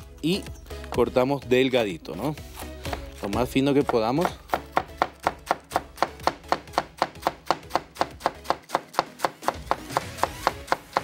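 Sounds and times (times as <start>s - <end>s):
knife chopping on plastic board: 2.8s - 11.0s.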